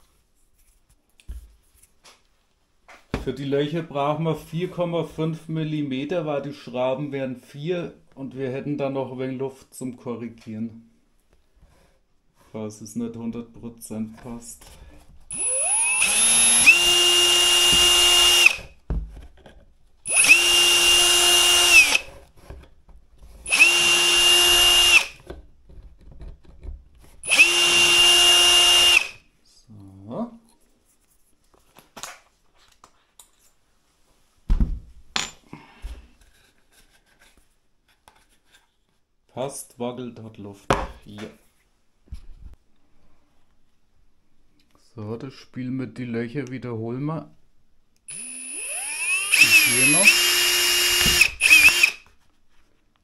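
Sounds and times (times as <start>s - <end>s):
electric drill whining: 15.3s - 18.7s, 20.1s - 22.1s, 23.4s - 25.2s, 27.2s - 29.2s, 48.1s - 52.0s.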